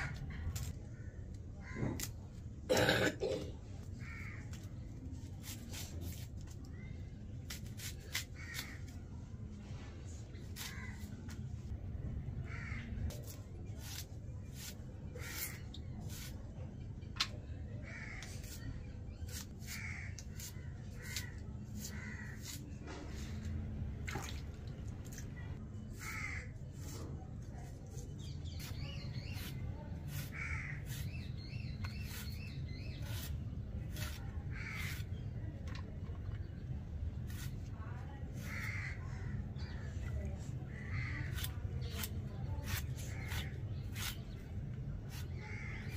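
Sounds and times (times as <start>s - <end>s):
crows cawing: 4.0s - 4.5s, 12.4s - 13.0s, 17.8s - 18.3s, 19.6s - 20.2s, 21.0s - 22.4s, 25.9s - 26.5s, 30.3s - 30.9s, 38.4s - 39.4s, 45.4s - 45.9s.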